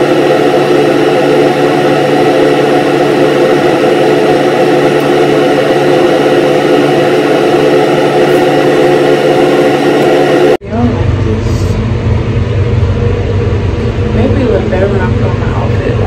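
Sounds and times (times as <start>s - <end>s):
hair dryer whirring: 0.0s - 12.7s.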